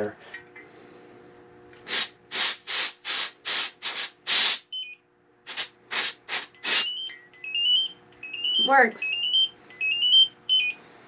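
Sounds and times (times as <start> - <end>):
propane hissing in short spurts: 1.8 - 4.7, 5.5 - 6.9.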